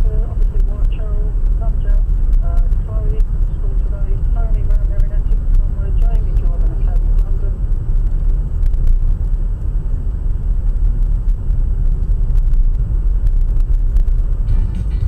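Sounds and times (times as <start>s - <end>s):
car engine and tyre noise: 0.0s - 15.0s
faint music: 0.0s - 15.0s.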